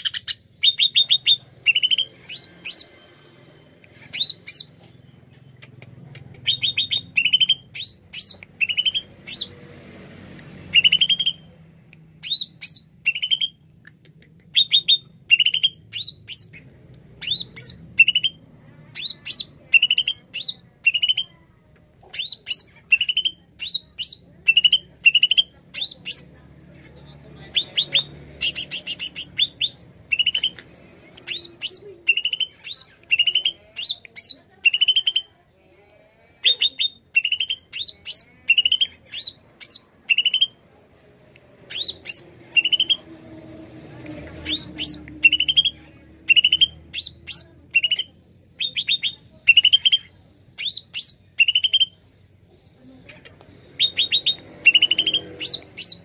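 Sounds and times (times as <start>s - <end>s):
bird singing whistled notes: 44.5s - 50.0s.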